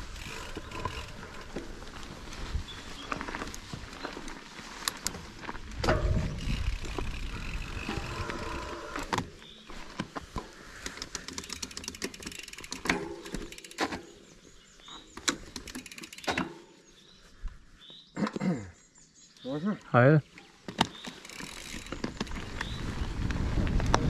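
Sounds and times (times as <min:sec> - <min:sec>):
chain and frame rattling: 0:00.0 - 0:01.8, 0:05.8 - 0:09.0, 0:10.9 - 0:14.2, 0:21.0 - 0:22.3
bike tyres rolling on dirt: 0:00.0 - 0:17.4, 0:20.5 - 0:24.0
wind rushing on microphone: 0:22.3 - 0:24.0.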